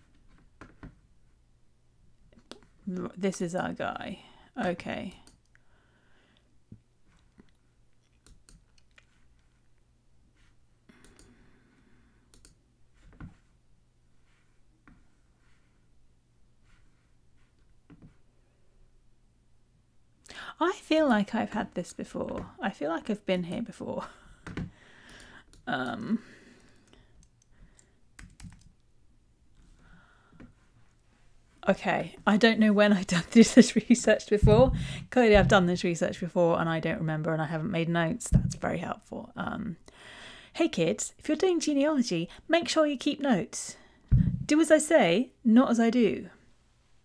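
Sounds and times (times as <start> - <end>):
low steady hum: 0.0 - 47.0
keyboard and mouse clicks: 7.2 - 9.1, 10.9 - 11.4, 12.3 - 13.3, 26.6 - 28.8.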